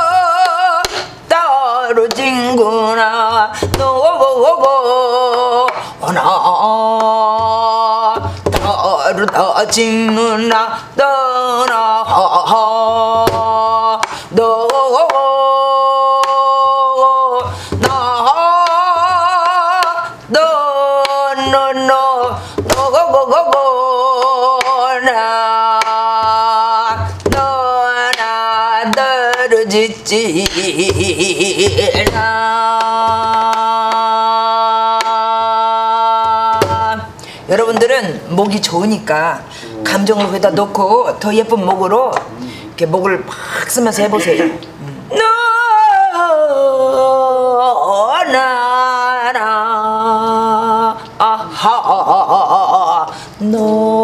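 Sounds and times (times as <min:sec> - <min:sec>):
woman singing wordless vocables: 0:00.0 - 0:54.0
barrel drum thumps: 0:07.4 - 0:08.9, 0:26.2 - 0:27.6, 0:30.9 - 0:32.4, 0:36.5 - 0:37.0.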